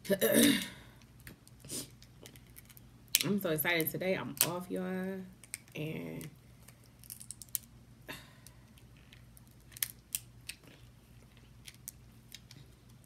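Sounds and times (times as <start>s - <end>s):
crab shell cracking: 5.4s - 5.8s, 6.6s - 7.8s, 8.4s - 13.0s.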